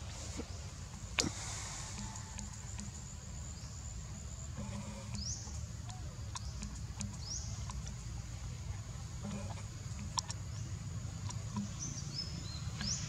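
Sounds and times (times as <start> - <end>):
small clicks of movement: 4.6 - 8.1.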